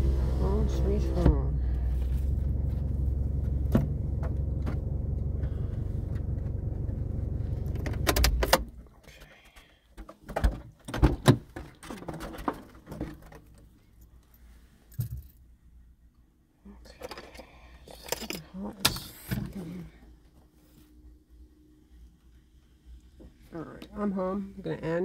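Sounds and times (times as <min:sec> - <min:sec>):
car engine running: 0:00.0 - 0:08.8.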